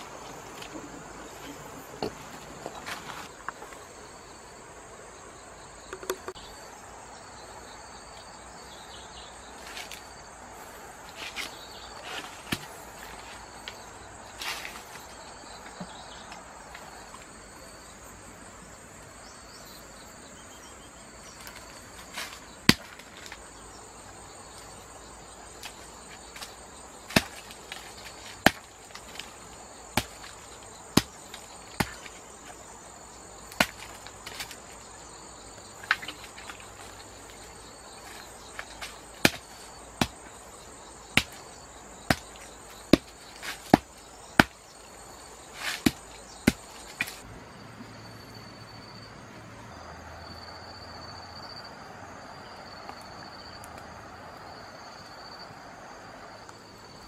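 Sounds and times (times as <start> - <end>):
insects droning: 0.0 - 57.0
sharp chopping knocks: 42.1 - 44.6.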